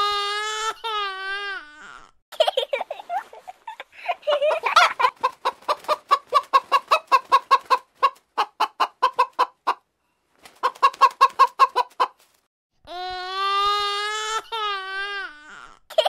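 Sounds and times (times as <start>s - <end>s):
hen clucking: 4.3s - 9.9s, 10.6s - 12.2s.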